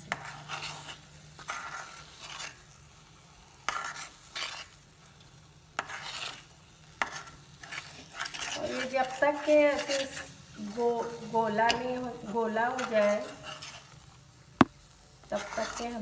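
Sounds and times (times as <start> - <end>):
ladle scraping pan: 0.1 - 2.6, 3.7 - 4.8, 5.8 - 14.0, 15.3 - 16.0.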